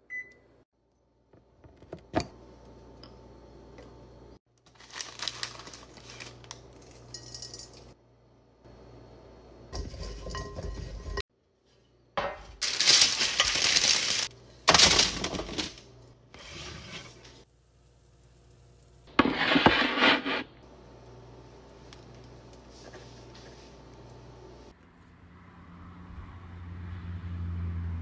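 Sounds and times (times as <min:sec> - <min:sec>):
squash pieces tumbling onto baking sheet: 0:12.2 - 0:15.9.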